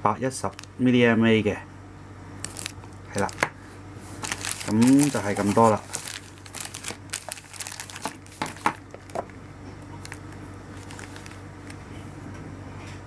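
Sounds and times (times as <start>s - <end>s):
low steady hum: 0.0s - 13.0s
plastic bags crinkling: 0.4s - 0.8s, 2.4s - 11.8s.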